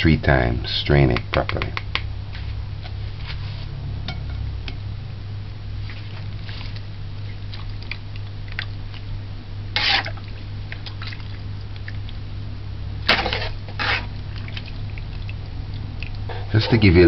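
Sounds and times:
steady low hum: 0.0s - 17.0s
wet fruit squelching in strainer: 5.8s - 12.3s, 12.9s - 17.0s
liquid dripping into bowl: 7.5s - 9.1s, 14.2s - 16.3s.

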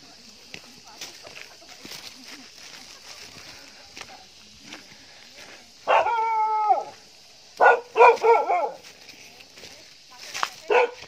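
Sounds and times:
dog howling bark: 5.9s - 7.0s, 7.6s - 8.8s.

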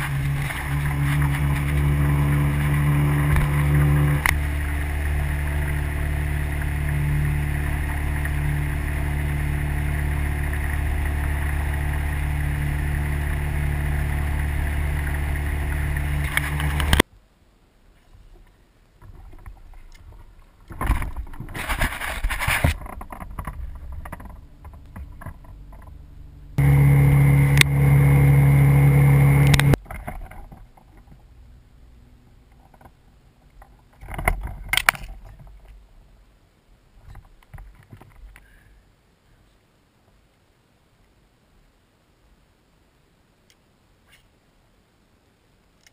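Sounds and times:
boat motor running: 0.0s - 17.0s, 22.8s - 29.8s
water splashing along hull: 0.0s - 17.0s, 26.6s - 30.9s.

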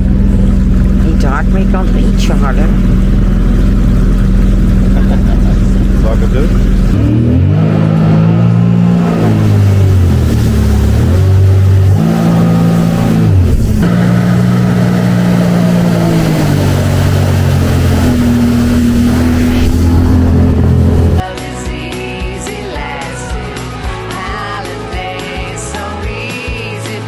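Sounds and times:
motorboat engine running hard: 0.0s - 21.4s.

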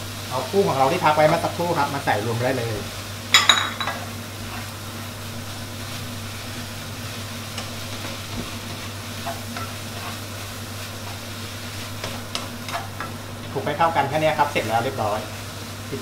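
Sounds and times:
noodles sizzling in a wok: 0.0s - 16.0s
spatula scraping wok: 3.8s - 15.6s.

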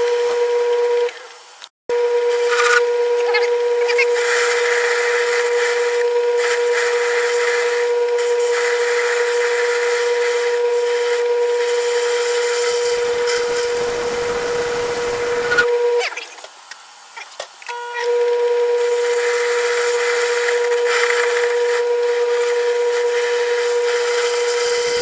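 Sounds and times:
tool cutting metal: 11.6s - 15.8s
lathe motor hum: 12.0s - 15.9s.

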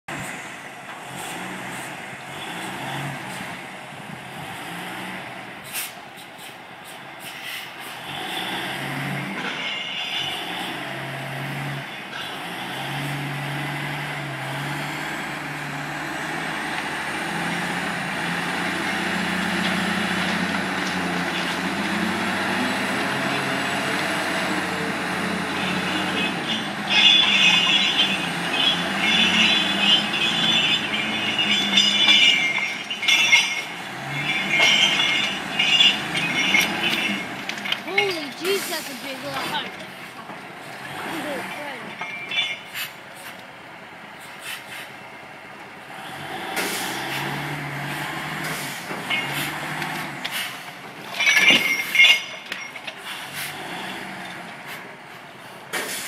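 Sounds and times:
diesel engine running: 0.1s - 56.0s
metal rattling: 24.4s - 40.0s, 50.9s - 53.0s.

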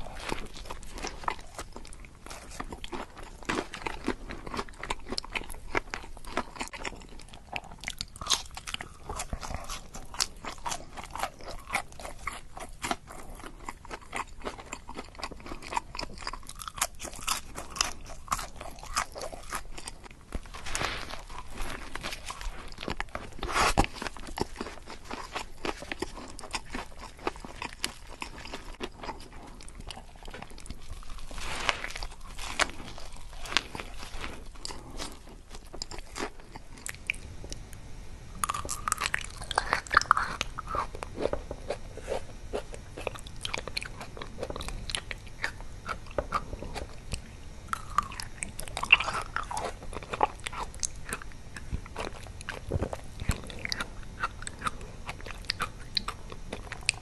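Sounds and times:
crunching and chewing food: 0.0s - 57.0s.

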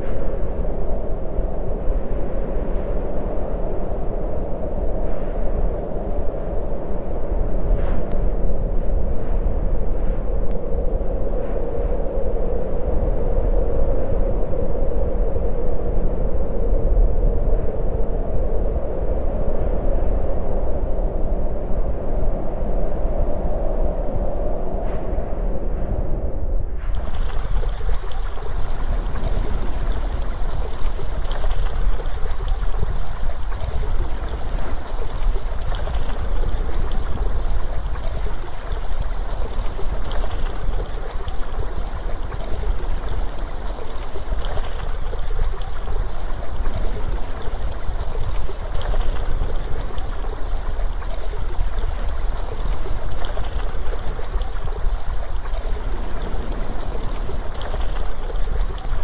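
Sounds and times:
rushing flowing water: 26.9s - 59.0s.

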